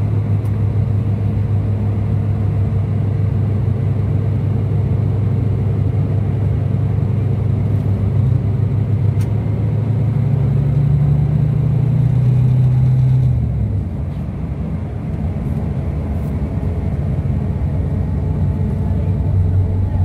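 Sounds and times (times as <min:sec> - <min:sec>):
diesel engine drone inside cabin: 0:00.0 - 0:20.0.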